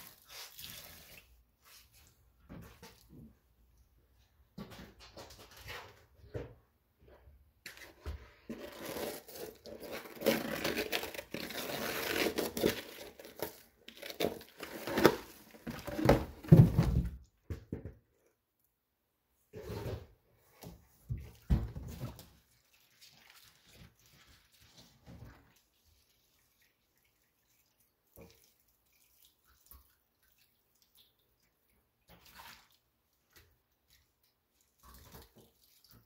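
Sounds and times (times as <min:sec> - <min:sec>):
material tearing and crinkling: 0:08.5 - 0:16.2.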